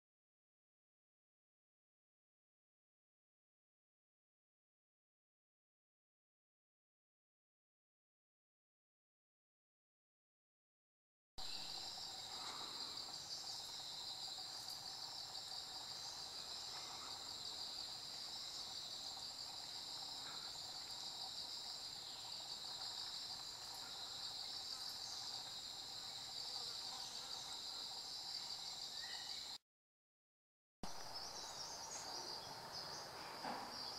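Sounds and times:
insects chirring: 11.4s - 29.6s, 30.8s - 33.9s.

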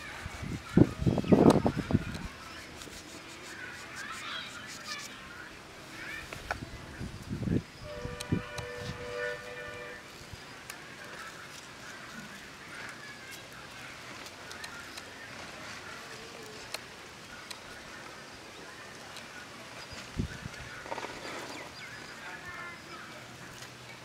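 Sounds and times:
bird calls: 7.8s - 24.0s.

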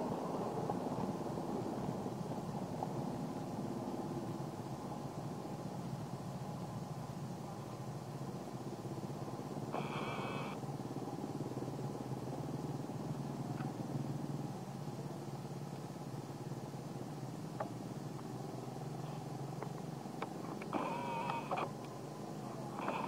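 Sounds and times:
motor engine droning: 8.1s - 16.0s, 16.8s - 23.0s.

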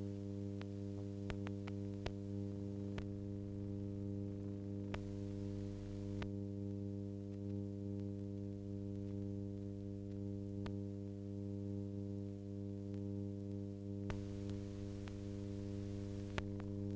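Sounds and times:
electrical mains hum: 0.0s - 16.9s.

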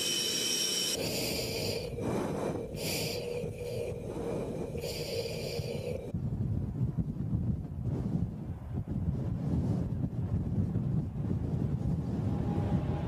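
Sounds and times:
breathing through oxygen mask: 0.0s - 6.1s
wind on microphone: 0.1s - 13.0s.

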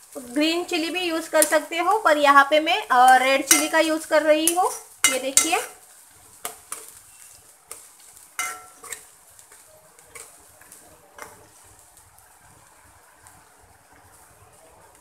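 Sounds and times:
onions sizzling in oil: 0.0s - 15.0s
metal spoon scraping a metal pan: 3.5s - 3.8s, 8.4s - 9.1s.

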